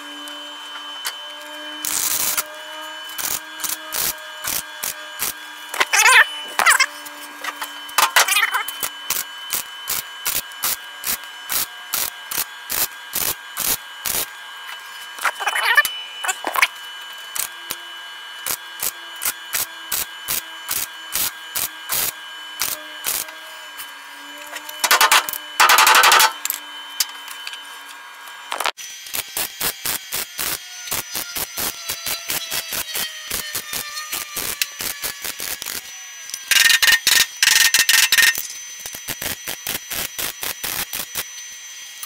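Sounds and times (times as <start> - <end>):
short welder bursts: 1.8 - 2.4, 3.1 - 6.9, 8.0 - 14.3, 18.4 - 23.3, 29.0 - 41.3.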